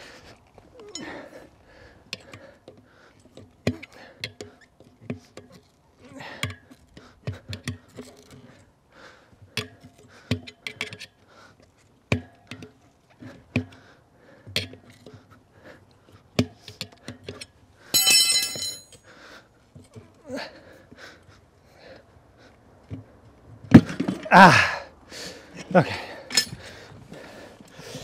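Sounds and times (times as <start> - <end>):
metallic clinks and knocks: 17.3 - 19.1, 26.3 - 26.6.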